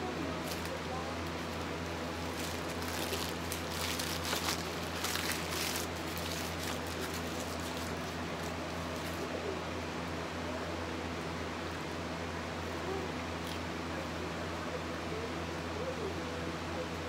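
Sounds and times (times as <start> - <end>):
low electrical hum: 0.0 - 17.0
paper wrapper crinkling: 1.4 - 9.2.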